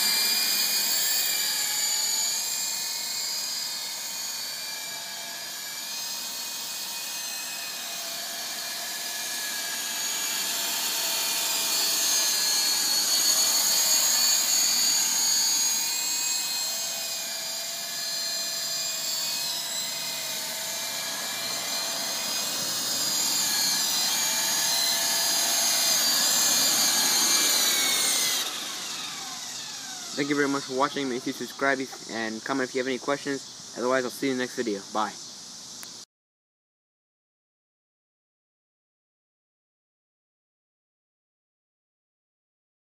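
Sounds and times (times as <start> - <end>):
toy helicopter rotors whining: 0.0 - 36.0.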